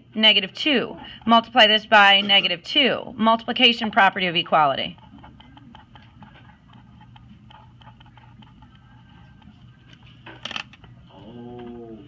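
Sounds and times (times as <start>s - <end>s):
pen scratching on paper: 3.6s - 10.2s.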